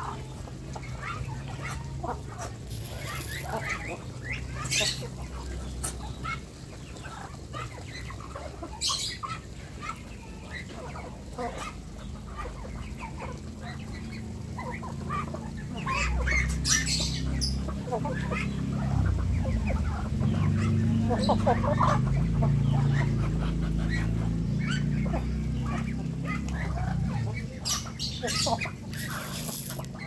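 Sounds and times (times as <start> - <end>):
chickens clucking: 0.0 - 30.0
ducks quacking: 0.0 - 30.0
sharp squawks: 28.9 - 30.0.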